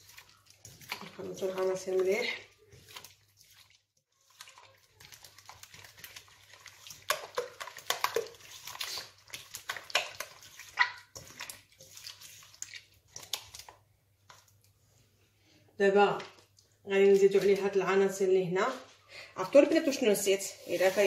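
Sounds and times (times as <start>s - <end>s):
hand squelching liquid in a bowl: 0.0s - 15.2s, 19.5s - 21.0s.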